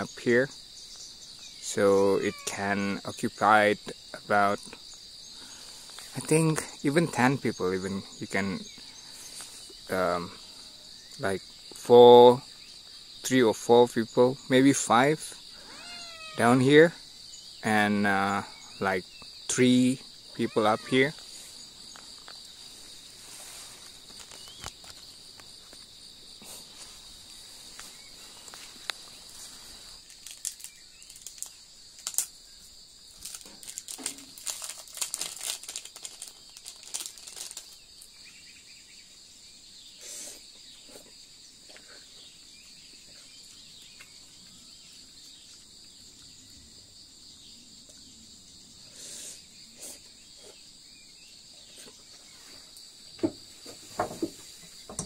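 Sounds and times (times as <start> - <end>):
high-pitched insect chorus: 0.0 - 55.0
plastic sachet tearing and crinkling: 30.1 - 32.3, 33.2 - 37.8.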